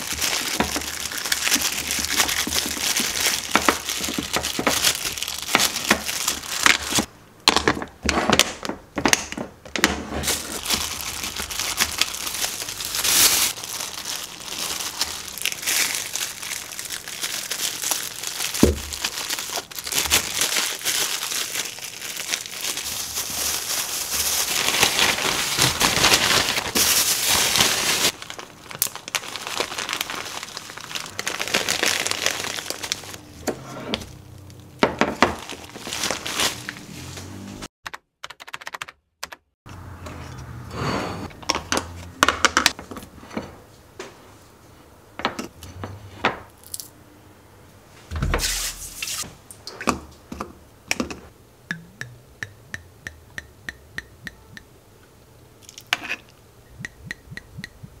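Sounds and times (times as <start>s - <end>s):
plastic crinkling and rustling: 0.0s - 7.1s, 10.2s - 33.2s, 35.0s - 37.3s.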